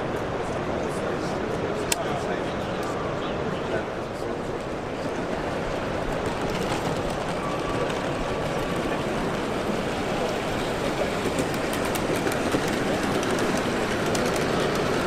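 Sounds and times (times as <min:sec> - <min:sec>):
busy hall background noise: 0:00.0 - 0:15.0
model train wheels clicking: 0:05.4 - 0:15.0.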